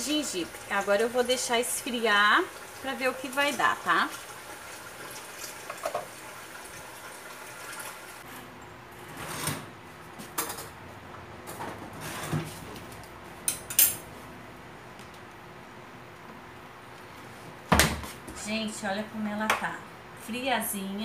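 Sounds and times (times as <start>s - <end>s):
dishes clinking on stone counter: 13.5s - 14.0s.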